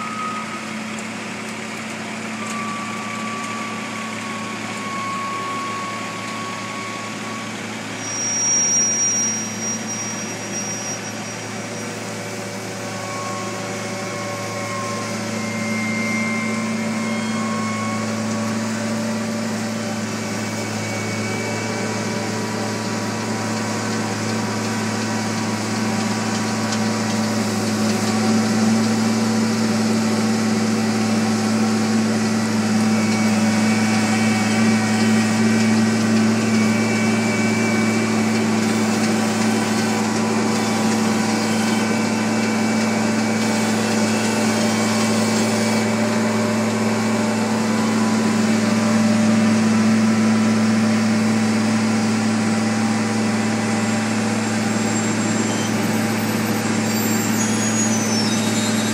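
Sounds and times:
paving machine engine droning: 0:00.0 - 0:58.9.

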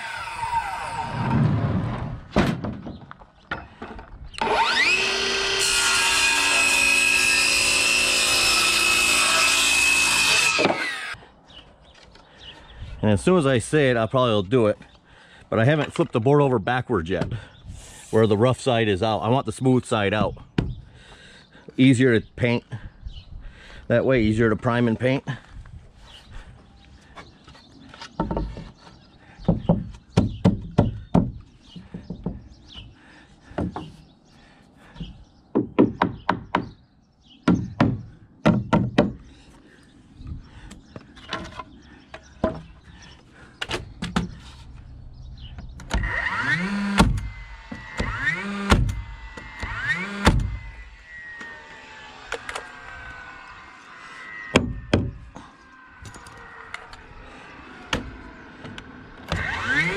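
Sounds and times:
power saw motor whirring: 0:00.0 - 0:01.5, 0:04.3 - 0:11.2, 0:45.6 - 0:59.9
wooden boards knocking and clattering: 0:01.2 - 0:04.1, 0:28.1 - 0:28.8.

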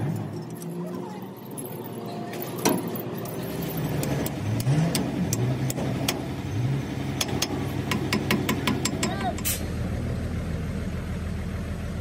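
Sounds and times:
metallic tool clinks: 0:00.2 - 0:04.2
vehicle engine revving: 0:02.4 - 0:12.0.

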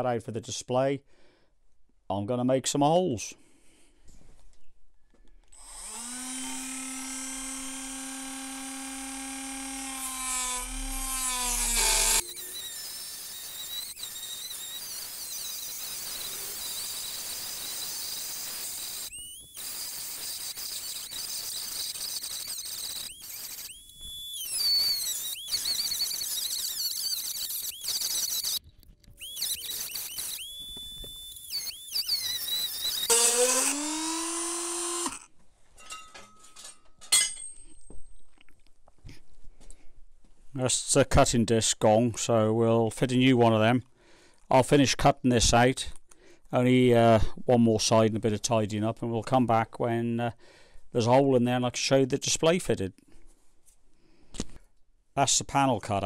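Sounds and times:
cutting disc grinding metal: 0:05.6 - 0:28.6, 0:29.2 - 0:35.3
rotary tool motor whine: 0:05.6 - 0:35.3.

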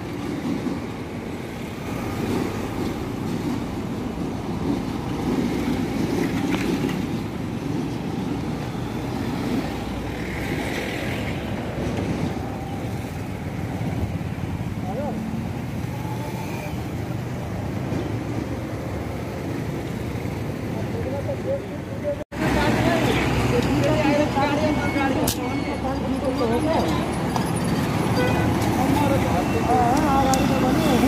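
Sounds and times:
cars passing: 0:00.0 - 0:31.0.

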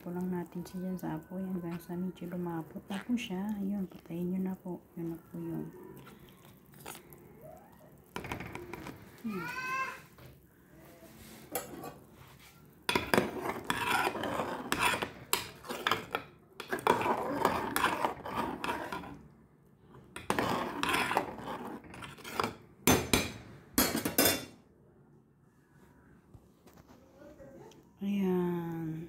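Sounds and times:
metal ladle scraping a metal pot: 0:11.2 - 0:12.1, 0:12.9 - 0:19.2, 0:20.2 - 0:22.6.

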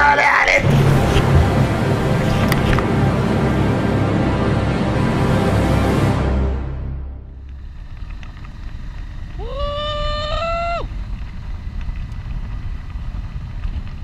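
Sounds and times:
motorcycle engine rumble: 0:00.6 - 0:02.9
wind noise: 0:00.6 - 0:02.9, 0:07.6 - 0:14.0
rider whooping: 0:09.3 - 0:11.2.

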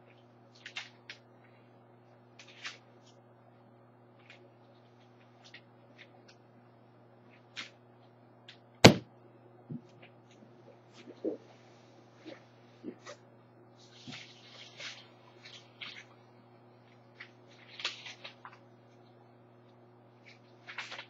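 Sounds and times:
steady low hum: 0:00.0 - 0:21.0
sharp knock: 0:08.8 - 0:09.1.

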